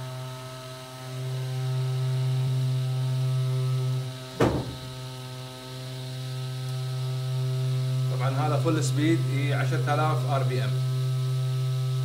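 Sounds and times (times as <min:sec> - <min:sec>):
electric motor humming: 0:00.0 - 0:12.0
sharp knock: 0:04.4 - 0:04.8.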